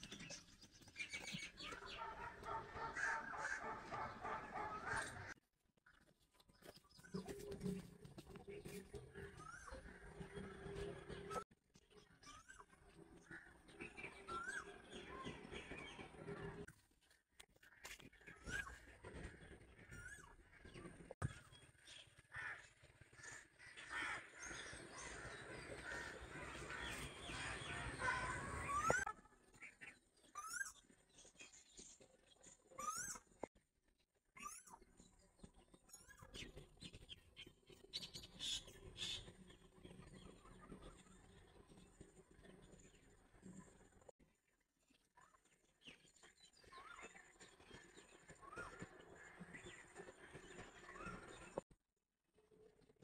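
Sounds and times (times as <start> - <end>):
birds calling: 1.0 - 5.4
chickens clucking: 1.7 - 5.4.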